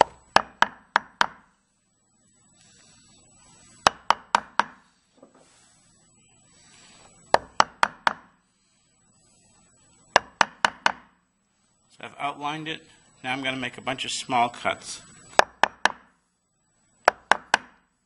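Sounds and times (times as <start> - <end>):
chisel knocks on wood: 0.0 - 1.4, 3.8 - 4.8, 7.3 - 8.3, 10.2 - 11.1, 15.4 - 16.1, 17.1 - 17.8.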